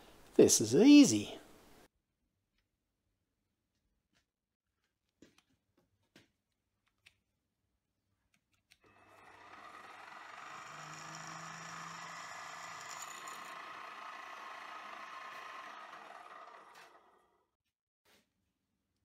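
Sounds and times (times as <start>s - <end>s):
mill spindle motor running: 8.9s - 17.4s.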